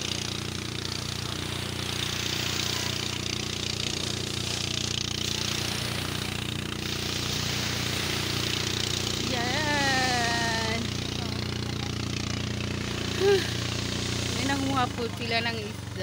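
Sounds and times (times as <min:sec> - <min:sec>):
engine running steadily: 0:00.0 - 0:16.0.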